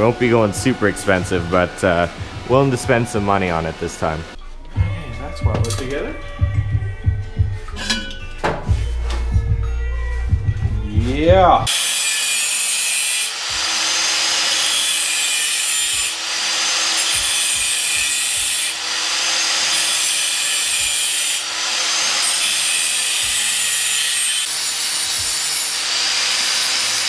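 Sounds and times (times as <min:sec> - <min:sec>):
angle grinder grinding metal: 0:00.0 - 0:06.5, 0:10.9 - 0:27.0.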